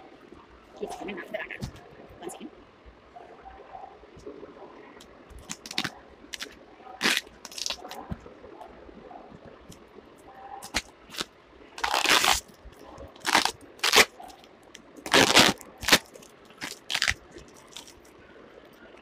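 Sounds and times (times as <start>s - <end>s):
cloth rustling and crinkling: 5.3s - 8.3s, 10.6s - 18.2s.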